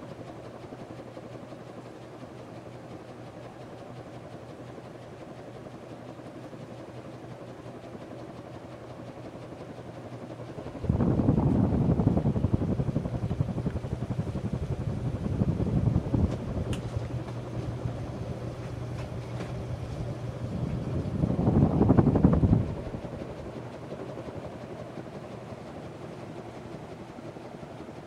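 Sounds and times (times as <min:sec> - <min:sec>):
ceiling fan motor humming: 0:00.0 - 0:28.0
wind buffeting microphone: 0:10.7 - 0:23.6.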